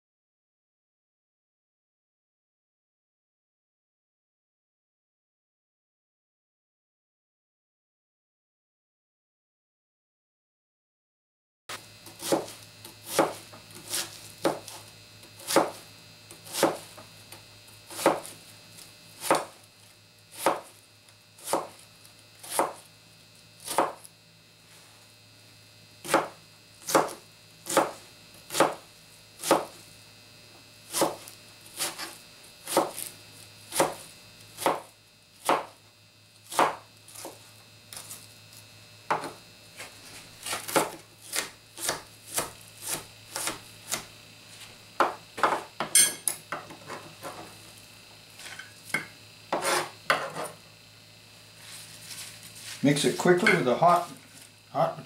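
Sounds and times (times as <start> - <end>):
knife chopping on plastic board: 12.0 - 17.0, 17.9 - 18.4, 19.2 - 19.6, 20.3 - 20.8, 21.4 - 21.8, 22.4 - 22.8, 23.6 - 24.1, 26.0 - 28.8, 29.4 - 29.8, 30.9 - 33.1, 33.7 - 34.0, 34.6 - 35.8, 36.5 - 37.4, 39.1 - 39.4, 40.4 - 44.1, 45.0 - 47.4, 48.9 - 50.5.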